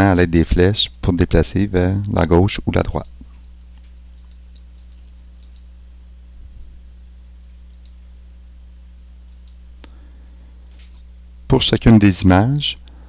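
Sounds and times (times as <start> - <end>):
low electrical hum: 0.0 - 13.0
computer mouse clicks: 3.0 - 5.7, 7.7 - 8.0, 9.3 - 9.6.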